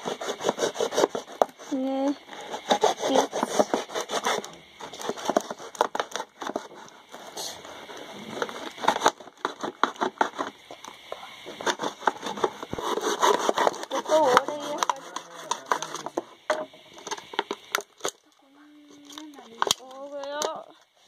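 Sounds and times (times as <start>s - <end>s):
blade sawing plastic bottle: 0.0s - 10.7s, 11.5s - 18.2s, 19.0s - 20.5s.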